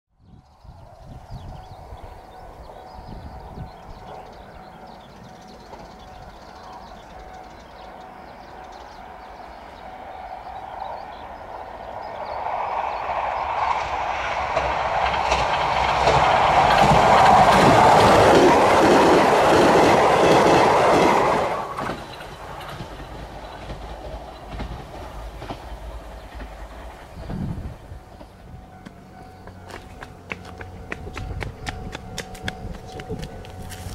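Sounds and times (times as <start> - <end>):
electric train passing: 0.6 - 33.9
wheels clattering over rail joints: 14.3 - 33.9.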